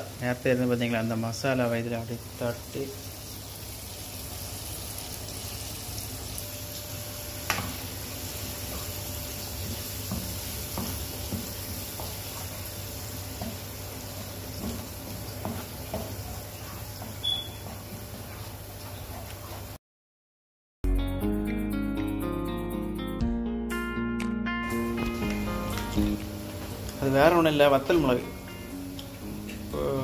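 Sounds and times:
paste sizzling in hot oil: 7.2 - 17.7
spatula knocking on pan: 9.6 - 12.2, 13.4 - 13.7, 14.5 - 16.2.

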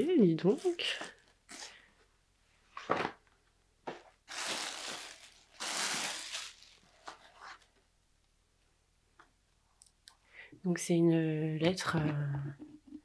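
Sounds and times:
paper rustling and crinkling: 4.3 - 7.7.

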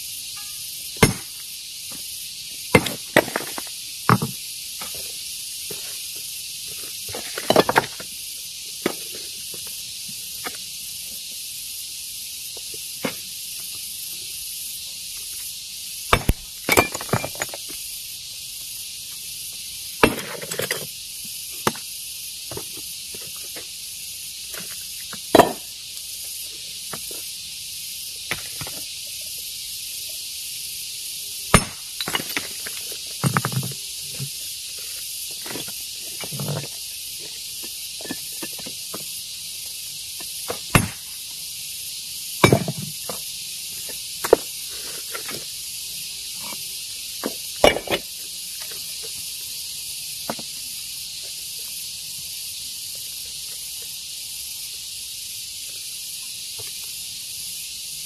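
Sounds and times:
steady high hiss: 0.0 - 58.0
hammer striking stone: 1.0 - 1.3, 2.8 - 4.3, 16.1 - 17.5, 25.4 - 25.6, 31.5 - 32.4, 40.7 - 41.0, 42.4 - 42.8.

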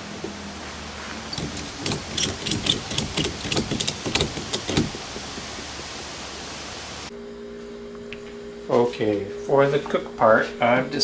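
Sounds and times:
steady background hiss: 0.0 - 11.0
ratchet strap clicking: 1.3 - 5.0.

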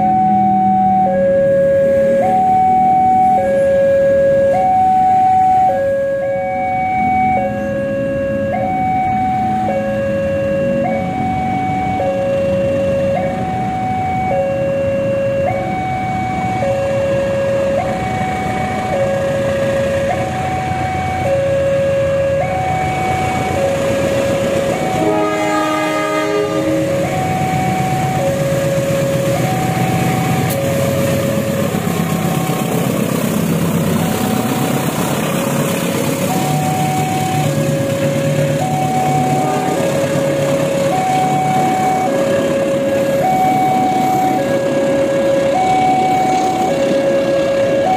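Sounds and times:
level crossing two-tone alarm: 0.0 - 32.9, 36.2 - 47.9
locomotive engine rumble: 0.0 - 47.9
train horn: 24.8 - 27.0, 39.3 - 40.0.

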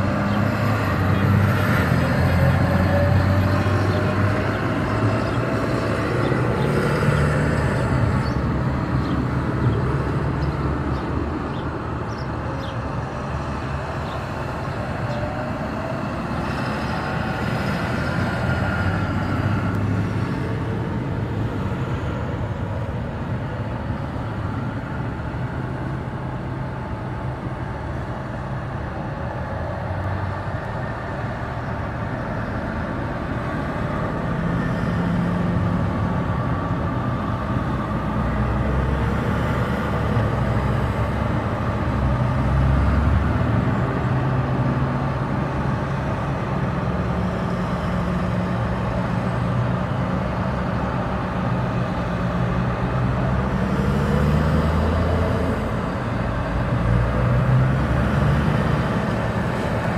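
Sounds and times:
tractors driving past: 0.0 - 59.9.

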